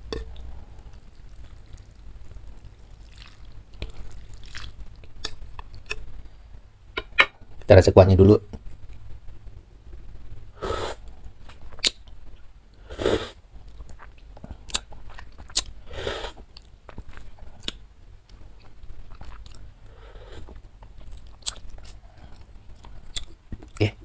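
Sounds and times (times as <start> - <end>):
person slurping soup: 10.6 - 11.0, 12.8 - 13.4, 15.9 - 16.4.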